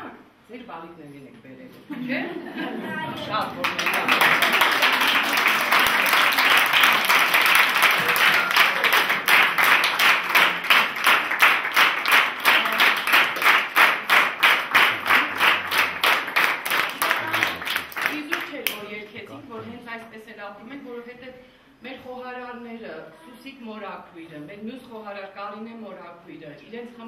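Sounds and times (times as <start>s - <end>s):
crowd applauding: 3.2s - 18.8s.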